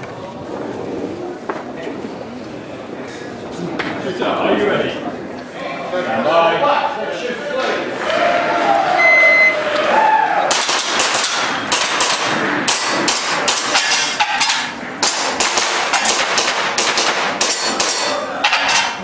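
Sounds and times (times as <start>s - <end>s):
airsoft pistol firing: 10.5s - 13.8s, 15.0s - 18.0s.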